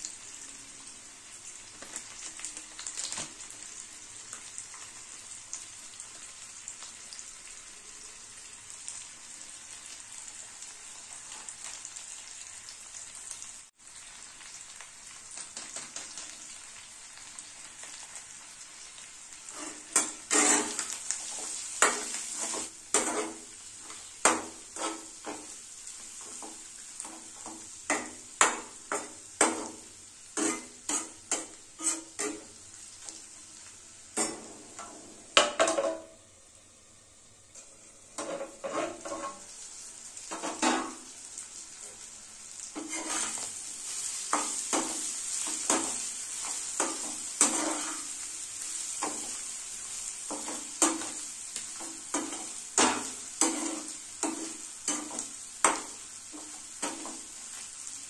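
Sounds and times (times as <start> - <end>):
liver sizzling in oil: 0.0 - 58.0
metal spatula scraping pan: 19.5 - 23.5, 24.3 - 25.5, 30.4 - 32.6, 38.2 - 39.5, 42.8 - 48.2, 52.1 - 57.2.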